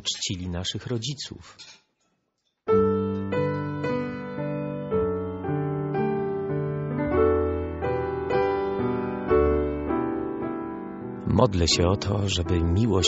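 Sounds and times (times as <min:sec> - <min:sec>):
slow solo piano: 0:02.7 - 0:13.0.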